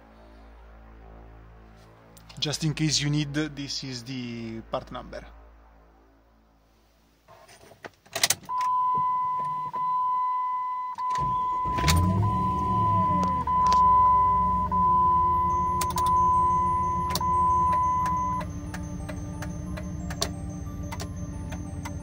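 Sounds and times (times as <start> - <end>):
car engine starting and idling: 8.2 - 22.0
dashboard warning chime: 8.5 - 22.0.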